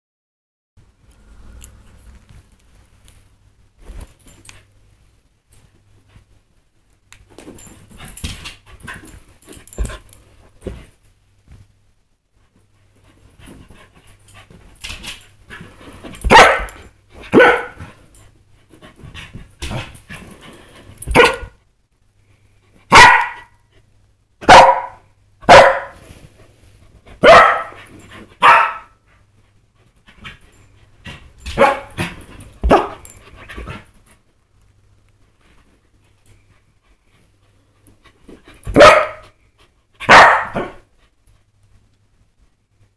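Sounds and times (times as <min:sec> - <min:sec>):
dog barking: 0:16.3 - 0:16.7, 0:17.3 - 0:17.8, 0:21.2 - 0:21.6, 0:22.9 - 0:23.6, 0:24.4 - 0:26.0, 0:27.2 - 0:27.8, 0:28.4 - 0:29.0, 0:31.6 - 0:32.0, 0:32.7 - 0:33.0, 0:38.8 - 0:39.2, 0:40.0 - 0:40.8.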